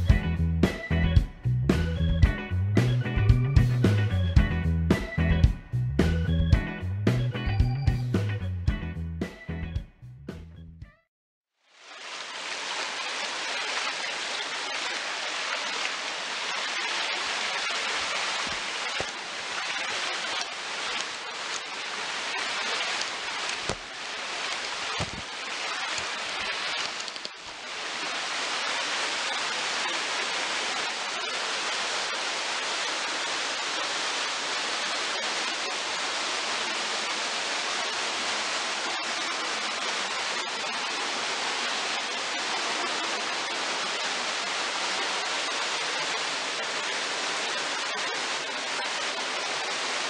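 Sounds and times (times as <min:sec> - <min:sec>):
waterfall pouring into pool: 0:11.6 - 0:50.0.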